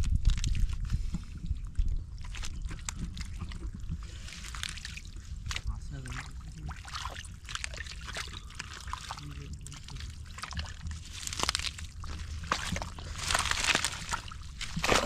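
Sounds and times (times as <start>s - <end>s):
hands squelching in mud: 0.2s - 15.0s.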